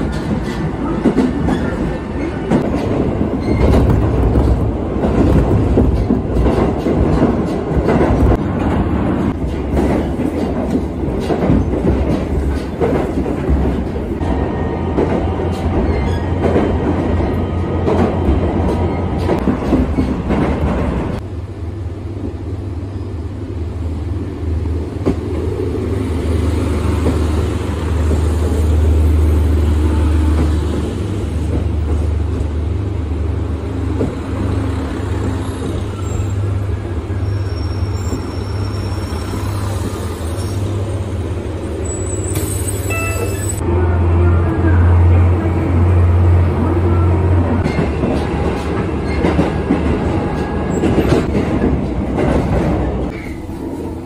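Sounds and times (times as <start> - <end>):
train wheels clickety-clack: 0.0 - 21.2, 26.8 - 28.9, 30.2 - 32.5, 33.9 - 36.3, 47.5 - 54.0.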